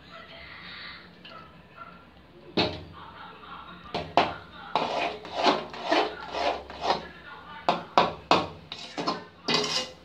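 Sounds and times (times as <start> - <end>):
metal spatula scraping a pan: 4.0 - 10.0.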